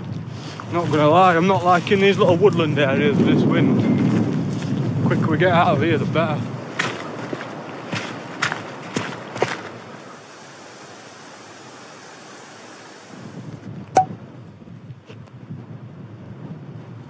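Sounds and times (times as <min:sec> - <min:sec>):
wind gusting on microphone: 0:00.0 - 0:10.5, 0:11.6 - 0:17.0
wind blowing: 0:00.0 - 0:17.0.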